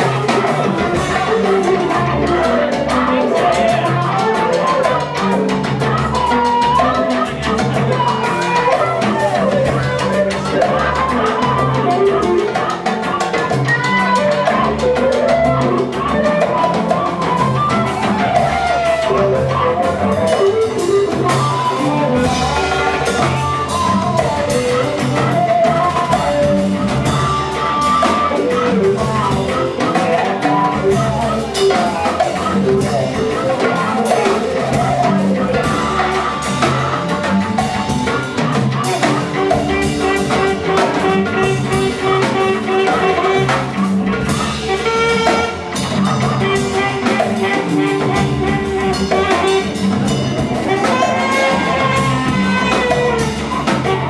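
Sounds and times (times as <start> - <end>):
drum kit: 0.0 - 54.0
horn line: 0.0 - 54.0
live jazz band groove: 0.0 - 54.0
upright bass: 0.0 - 54.0.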